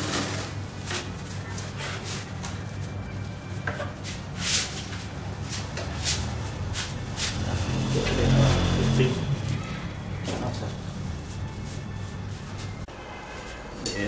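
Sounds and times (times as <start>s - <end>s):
paintbrush sweeping rough cement: 4.0s - 9.4s, 10.2s - 12.9s.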